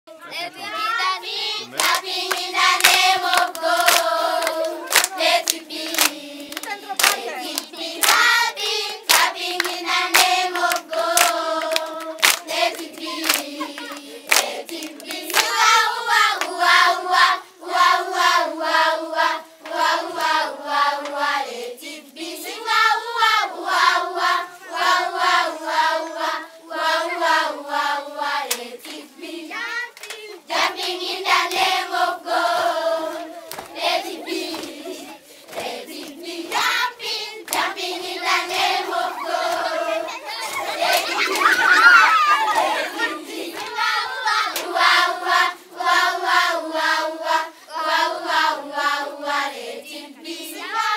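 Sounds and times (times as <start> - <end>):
children singing: 0.3 - 50.9
hands clapping: 1.7 - 8.4, 9.0 - 16.6, 29.9 - 30.3, 33.2 - 33.8, 34.4 - 34.8, 35.5 - 36.8, 37.4 - 37.8, 39.5 - 39.8, 40.4 - 42.8, 43.5 - 43.8.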